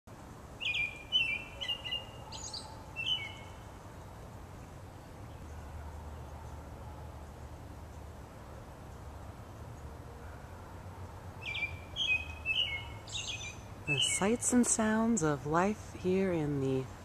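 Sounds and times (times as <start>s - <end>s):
songbird chirping: 0.6s - 17.0s.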